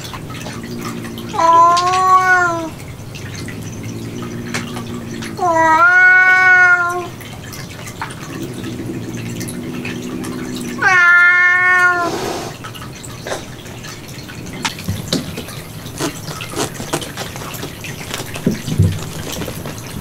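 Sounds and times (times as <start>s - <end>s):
cat low moan: 0.0s - 7.2s, 8.2s - 12.1s
cat meowing: 0.8s - 2.8s, 5.1s - 7.1s, 10.3s - 12.1s.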